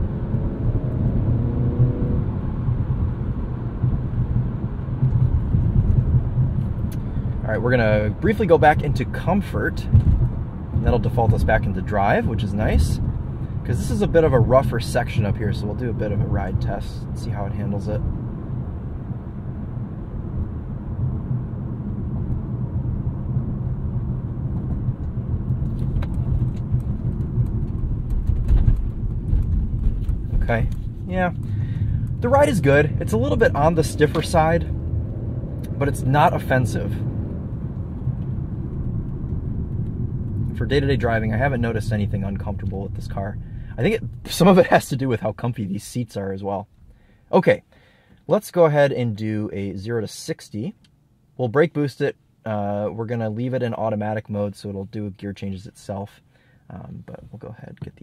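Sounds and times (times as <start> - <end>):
faint engine drone: 0.0 - 46.0
road and tyre rumble: 0.0 - 58.0
sharp knocks over bumps: 9.9 - 11.6, 24.6 - 31.0.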